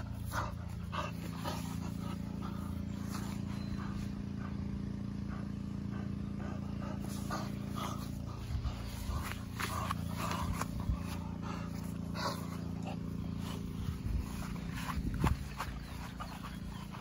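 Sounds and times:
motor droning steadily: 0.0 - 17.0
dog scuffing and breathing: 7.0 - 17.0.

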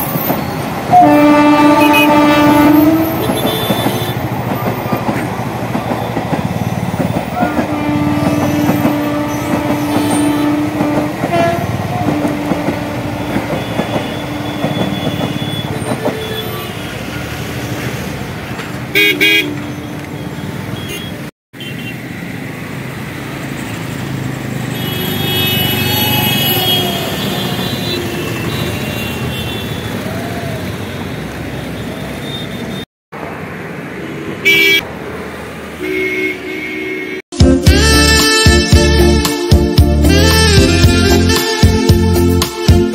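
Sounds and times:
trains running: 0.0 - 20.7
road traffic: 0.0 - 42.9
vehicle horns honking: 0.9 - 4.3, 7.3 - 17.1, 18.9 - 21.9, 24.7 - 30.0, 34.4 - 34.8, 35.8 - 42.9.

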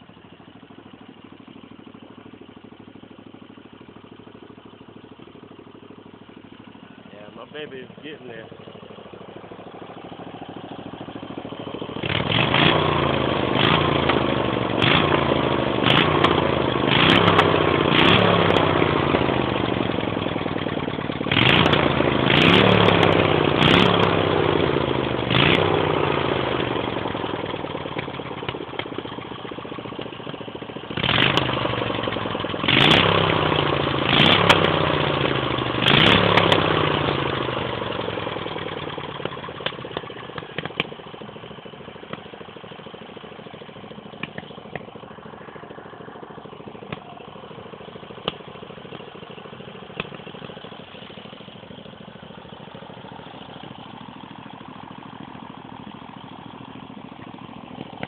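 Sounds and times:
small engine revving: 12.0 - 20.5, 21.2 - 27.2, 30.9 - 38.7.

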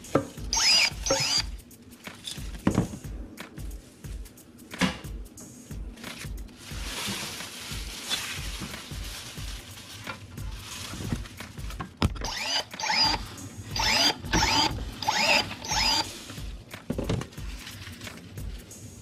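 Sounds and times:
pruning shears motor whirring: 0.5 - 1.5, 12.2 - 16.2.

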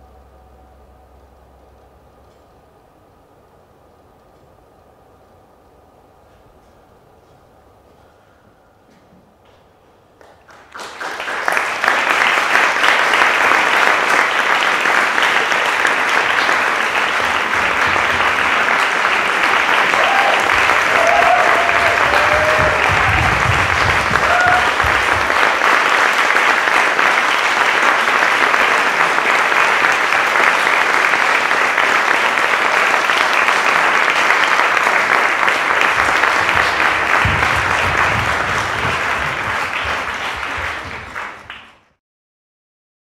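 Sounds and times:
audience applauding: 10.2 - 42.0
audience calls: 10.7 - 41.9.

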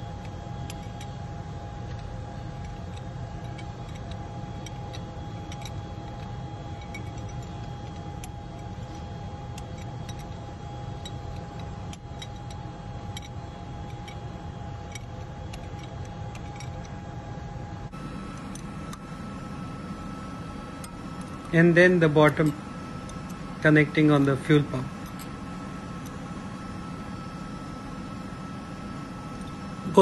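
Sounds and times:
diesel engine room drone: 0.0 - 30.0
spanner clicking on nut: 0.2 - 1.2, 1.9 - 14.2, 14.8 - 17.0.

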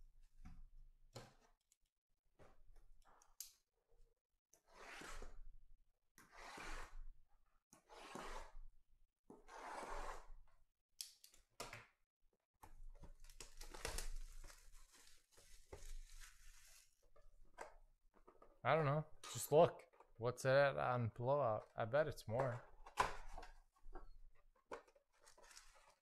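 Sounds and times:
plastic wrap crinkling: 13.2 - 17.0
plastic wrap tearing: 13.2 - 17.0.

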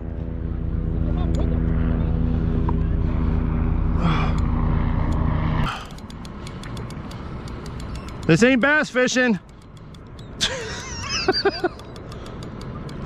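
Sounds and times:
sharp clicks: 4.3 - 13.0.

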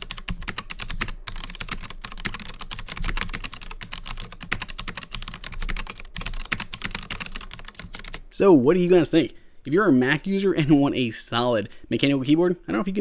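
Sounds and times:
mechanical keyboard typing: 0.0 - 8.2.

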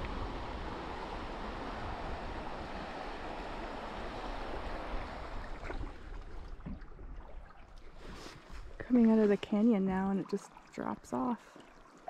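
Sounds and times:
river water rushing: 0.0 - 5.9.

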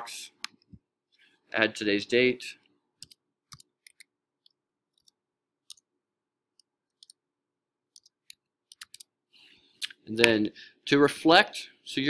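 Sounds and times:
computer keyboard clicks: 8.0 - 9.1.

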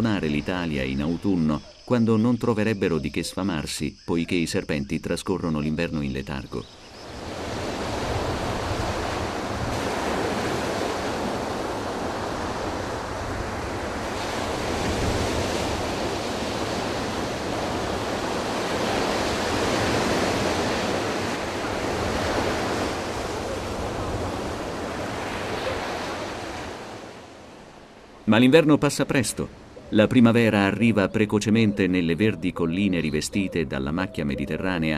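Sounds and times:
sea surf breaking on beach: 6.9 - 29.9.

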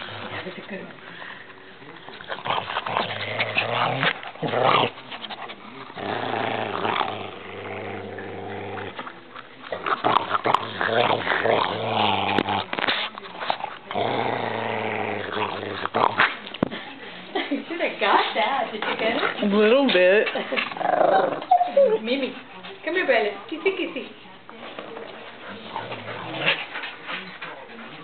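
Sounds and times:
dog growling low: 0.0 - 12.7, 13.5 - 16.2, 20.7 - 21.6, 25.4 - 28.0.

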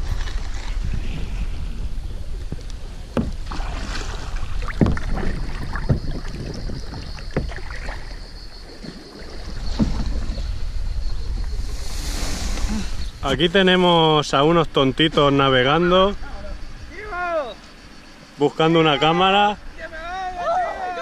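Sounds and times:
wind rumble on microphone: 0.0 - 8.6, 9.2 - 17.2
kayak paddles splashing in water: 0.0 - 13.4.

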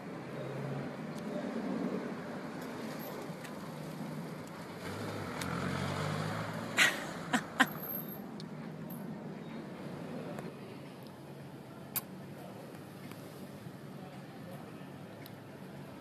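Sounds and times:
woman laughing: 6.8 - 7.9.

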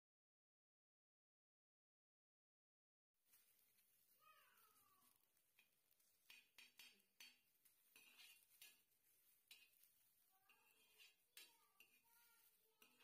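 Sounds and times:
metal spatula clinking on pan: 5.6 - 13.0.

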